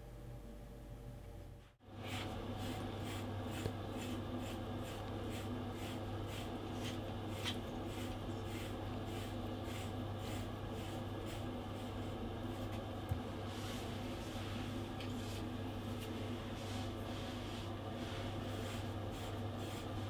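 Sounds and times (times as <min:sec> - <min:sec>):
brush scratching through dog fur: 0:02.0 - 0:12.2, 0:16.7 - 0:20.0.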